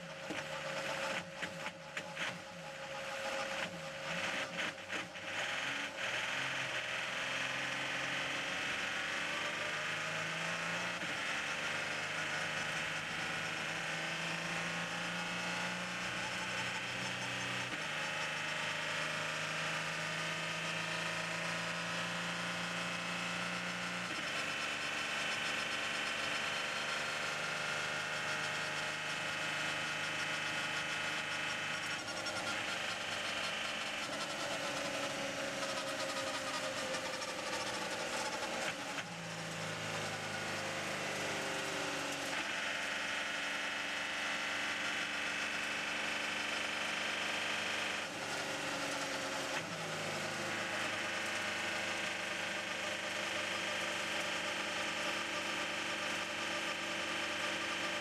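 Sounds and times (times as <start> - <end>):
race car engine droning: 0.0 - 58.0.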